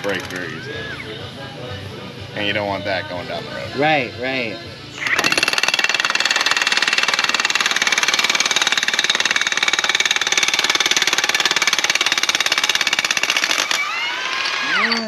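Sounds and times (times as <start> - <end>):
impact wrench hammering: 5.0 - 15.0.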